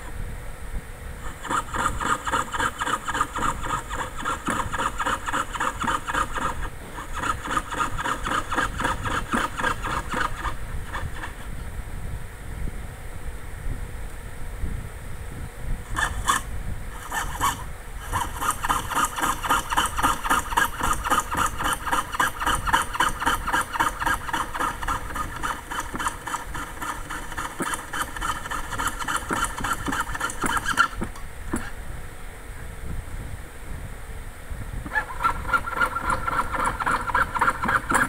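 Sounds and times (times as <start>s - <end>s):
hand saw rasping through metal: 1.2s - 11.5s, 15.9s - 31.7s, 34.9s - 38.0s.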